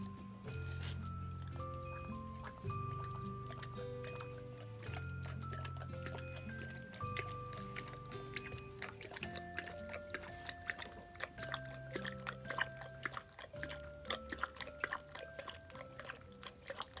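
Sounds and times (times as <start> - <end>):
dog eating from plastic bowl: 0.0 - 17.0
soft background music: 0.0 - 17.0.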